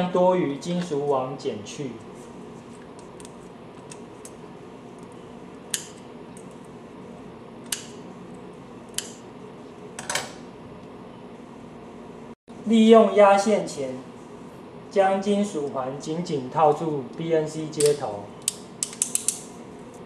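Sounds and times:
room hum: 0.0s - 20.0s
wire cutters snipping: 7.6s - 8.0s, 8.9s - 9.2s, 17.8s - 19.5s.

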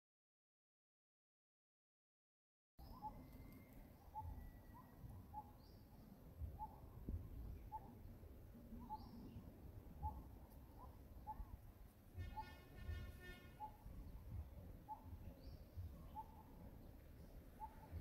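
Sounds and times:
bird calling faintly: 2.8s - 18.0s
faint higher chirps: 12.2s - 18.0s.

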